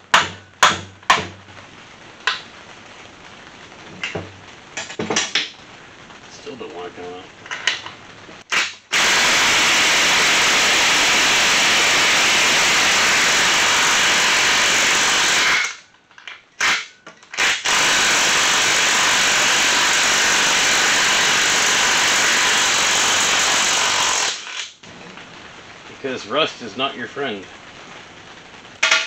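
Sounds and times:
impact wrench hammering: 0:00.1 - 0:01.4.

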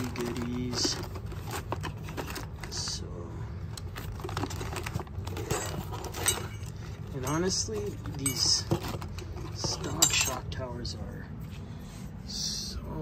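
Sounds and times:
bagged parts clicking and rustling: 0:00.0 - 0:03.0, 0:03.7 - 0:10.6.

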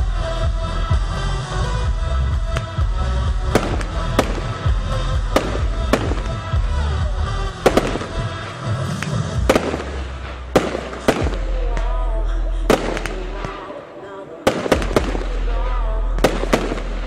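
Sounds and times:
loud music with steady bass: 0:00.0 - 0:17.0
firework shells bursting: 0:07.6 - 0:12.0.

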